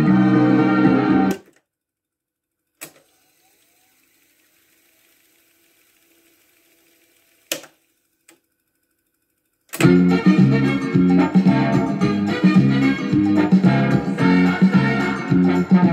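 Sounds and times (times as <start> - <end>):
organ music from tape: 0.0 - 1.6, 9.8 - 15.9
tape reels spooling: 2.4 - 9.9
small click: 2.8 - 3.1, 7.5 - 8.4.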